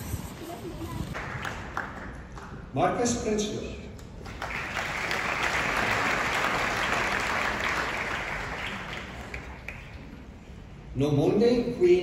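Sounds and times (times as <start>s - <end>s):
audience applauding: 1.2s - 2.6s, 4.2s - 10.2s.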